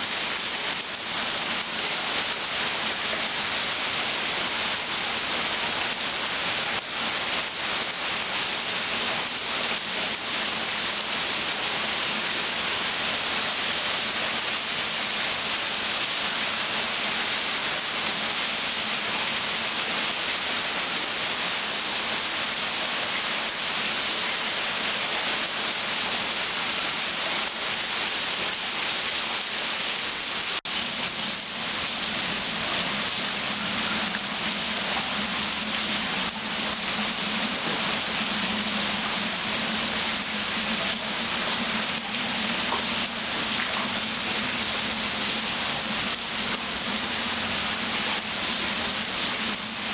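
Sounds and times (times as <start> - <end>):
rain splashing on water: 0.0 - 49.9.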